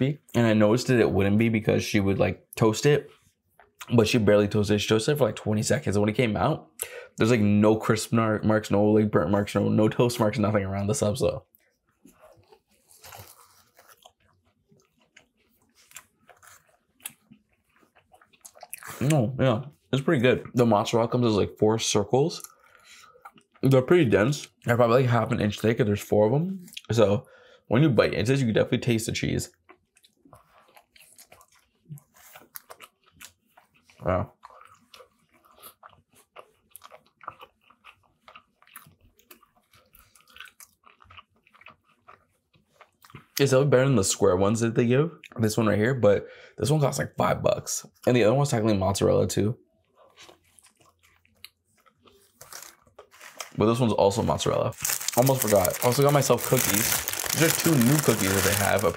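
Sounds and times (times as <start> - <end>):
person chewing food: 11.4 - 19.2, 22.4 - 23.7, 29.5 - 43.4, 49.6 - 53.6, 54.4 - 58.9.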